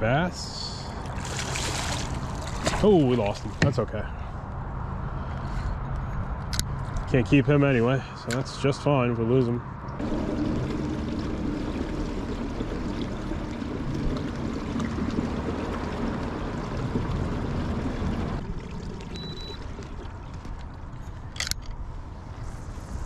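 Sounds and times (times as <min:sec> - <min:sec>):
water sloshing and trickling: 0:00.8 - 0:03.9, 0:10.0 - 0:22.3.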